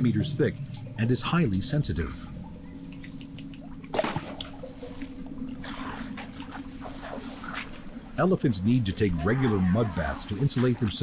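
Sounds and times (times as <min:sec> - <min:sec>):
crickets chirring: 0:00.0 - 0:11.0
water splashing and pouring: 0:03.0 - 0:08.0.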